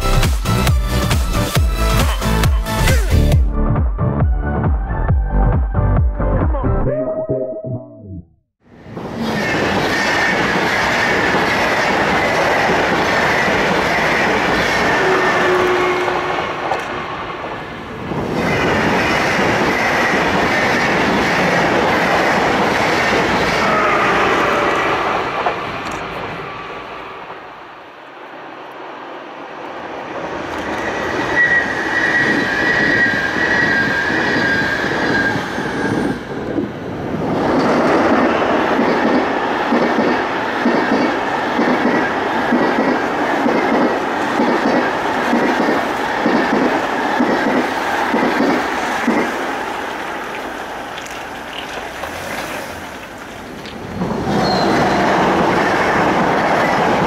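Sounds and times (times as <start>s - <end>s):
train wheels running over rails: 8.8s - 23.6s, 30.1s - 57.0s
high wheel squeal: 30.6s - 36.4s, 54.3s - 55.2s.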